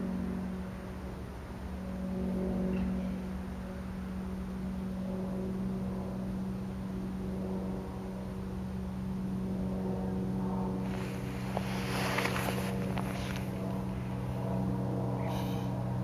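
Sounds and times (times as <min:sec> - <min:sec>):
low engine drone: 0:00.0 - 0:16.0
rustling: 0:10.8 - 0:14.0.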